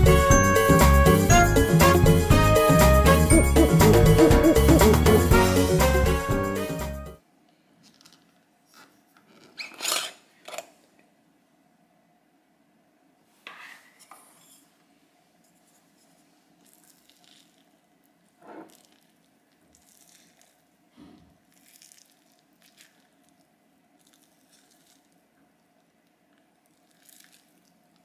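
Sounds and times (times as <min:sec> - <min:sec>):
spatula squishing sticky dough: 0:16.0 - 0:28.0.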